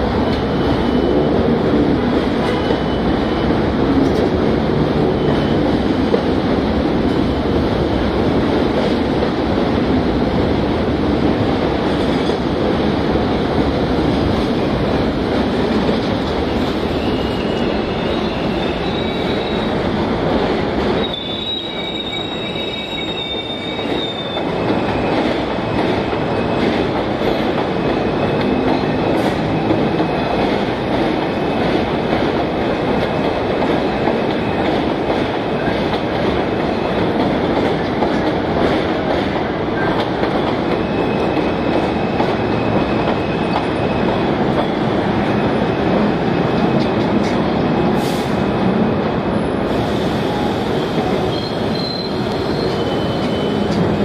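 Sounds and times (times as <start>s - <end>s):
train wheels rumbling on rails: 0.0s - 54.0s
high wheel squeals: 16.5s - 19.8s, 21.0s - 25.2s, 50.2s - 53.8s.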